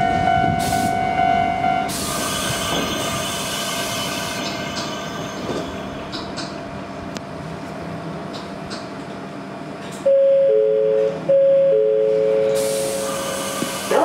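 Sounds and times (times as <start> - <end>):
train interior running noise: 0.0 - 14.0.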